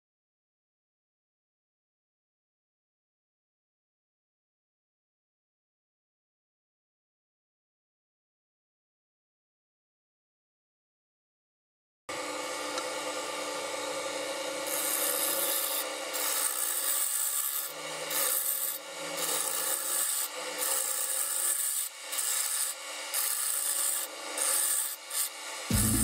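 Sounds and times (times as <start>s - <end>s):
wood lathe humming: 12.1s - 26.0s
turning tool scraping wood: 14.6s - 26.0s.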